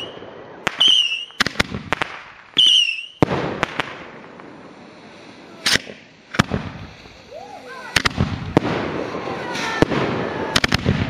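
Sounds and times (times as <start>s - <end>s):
firework whistle: 0.0s - 1.5s, 2.6s - 3.3s
fireworks bangs and pops: 0.0s - 11.0s
hissing crackling firework burst: 0.0s - 11.0s.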